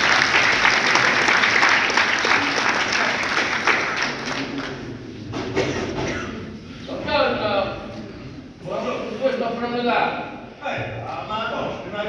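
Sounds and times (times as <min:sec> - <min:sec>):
audience applauding: 0:00.0 - 0:05.8.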